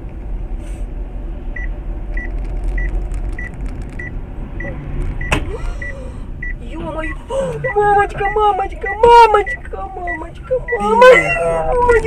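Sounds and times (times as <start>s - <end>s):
car cabin road rumble: 0.0s - 12.0s
short electronic beeps: 7.6s - 11.4s.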